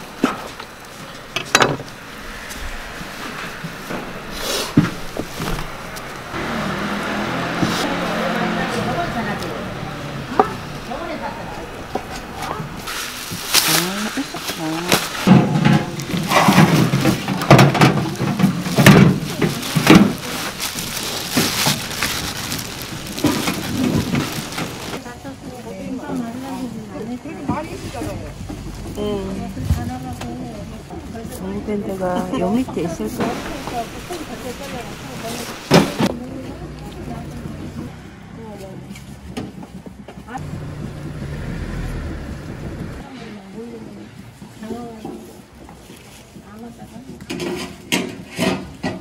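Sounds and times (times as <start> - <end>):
plastic bags crinkling: 12.8 - 25.0.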